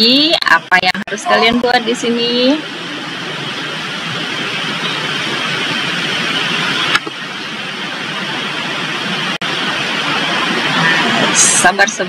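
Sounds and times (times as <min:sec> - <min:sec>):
steady rushing noise: 0:00.0 - 0:12.0.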